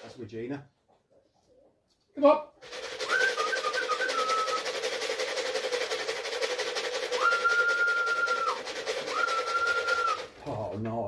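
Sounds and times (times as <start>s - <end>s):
person whistling: 3.0s - 4.7s, 7.1s - 10.3s.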